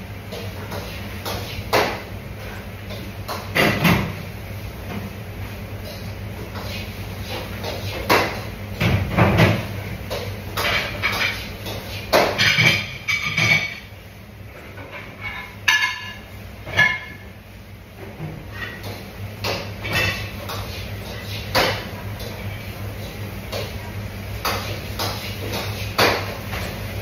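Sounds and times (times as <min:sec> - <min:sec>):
utensils and dishes clinking: 0:09.3 - 0:13.9, 0:14.7 - 0:17.2, 0:18.4 - 0:22.5.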